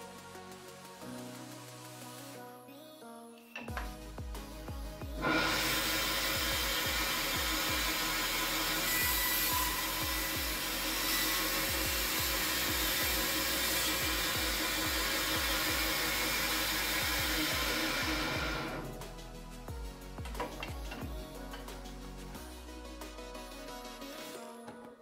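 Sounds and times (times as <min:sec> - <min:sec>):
background music beat: 0:00.0 - 0:25.0
bandsaw cutting wood: 0:05.2 - 0:18.9.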